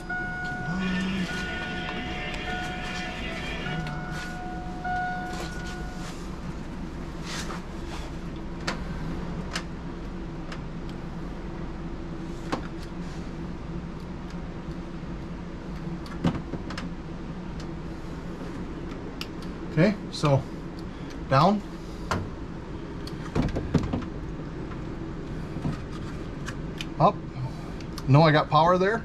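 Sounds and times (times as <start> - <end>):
steady high tone: 0.0 - 7.1
steady low hum: 0.0 - 29.0.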